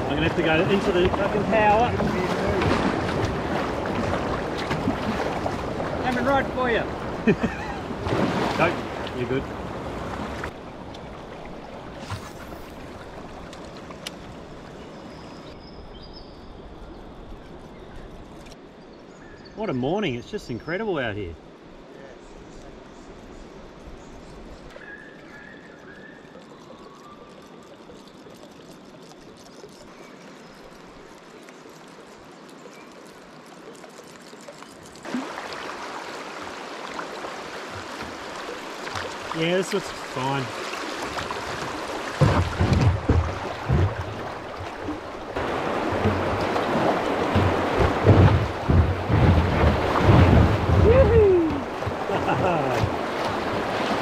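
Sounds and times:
river water rushing: 0:00.0 - 0:14.7, 0:32.2 - 0:54.0
faint clicks: 0:13.5 - 0:14.3.

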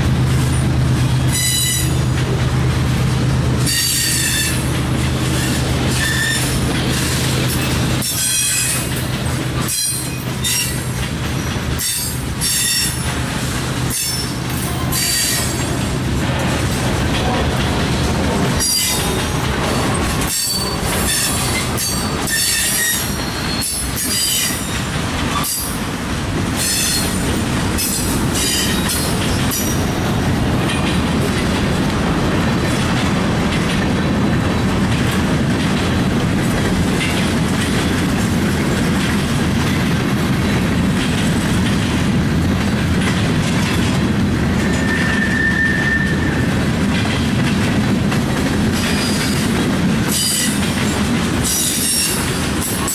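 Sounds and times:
freight train wheels rumbling: 0:00.0 - 0:52.9
steel wheels squealing: 0:01.3 - 0:02.0, 0:03.6 - 0:04.7, 0:05.3 - 0:09.0, 0:09.6 - 0:13.1, 0:13.9 - 0:15.8, 0:18.6 - 0:19.2, 0:19.9 - 0:25.8, 0:26.6 - 0:27.2, 0:27.8 - 0:29.9, 0:44.6 - 0:46.6, 0:50.1 - 0:50.6, 0:51.4 - 0:52.9.

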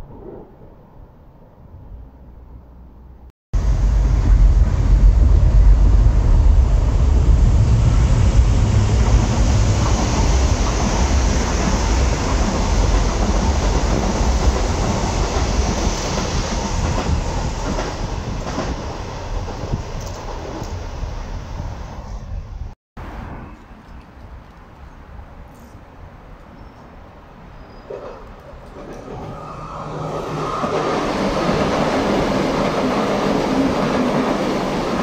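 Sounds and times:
electric train passing: 0:03.6 - 0:22.4, 0:28.4 - 0:35.0.

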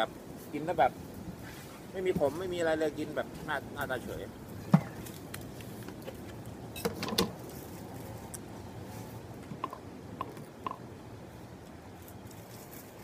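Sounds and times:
low background noise: 0:00.0 - 0:13.0
eating clicks and knocks: 0:09.5 - 0:10.8.

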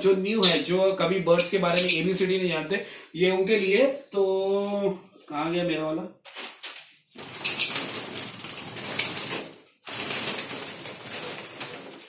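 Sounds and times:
birds flapping wings in cage: 0:07.2 - 0:12.0.

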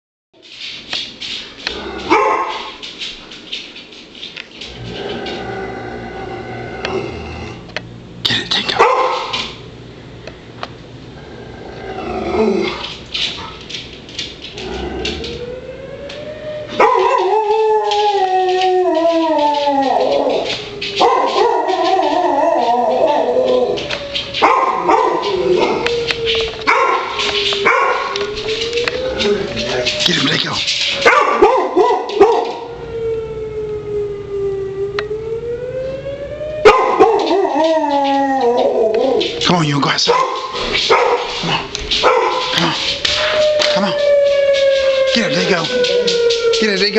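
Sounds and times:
dog barking: 0:02.1 - 0:02.7, 0:08.7 - 0:09.5, 0:16.8 - 0:17.2, 0:21.0 - 0:21.7, 0:24.4 - 0:25.3, 0:26.7 - 0:28.2, 0:31.0 - 0:32.7, 0:36.6 - 0:37.3, 0:40.0 - 0:42.7
faint siren wail: 0:04.2 - 0:07.6, 0:11.2 - 0:46.9
dog howling: 0:04.6 - 0:07.7, 0:11.2 - 0:13.8, 0:14.5 - 0:35.8, 0:36.5 - 0:46.9.

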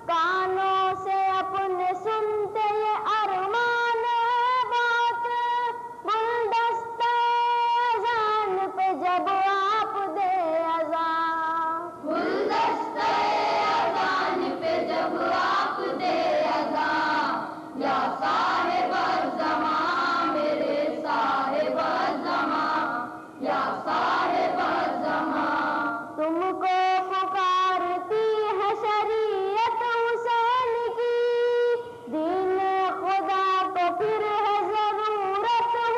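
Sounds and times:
boys' choir singing in unison: 0:12.0 - 0:26.4.

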